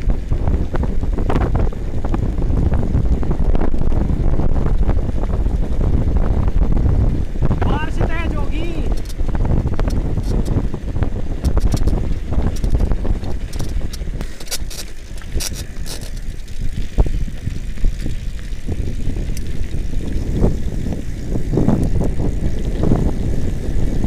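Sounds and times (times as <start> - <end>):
tyres rumbling on road: 0.0 - 24.0
wind buffeting microphone: 0.0 - 24.0
bike clicks and rattles: 8.9 - 24.0.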